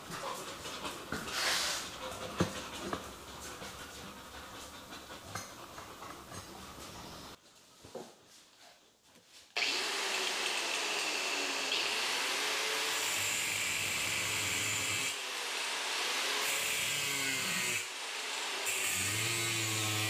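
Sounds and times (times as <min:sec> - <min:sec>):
angle grinder grinding steel: 0:09.6 - 0:20.0.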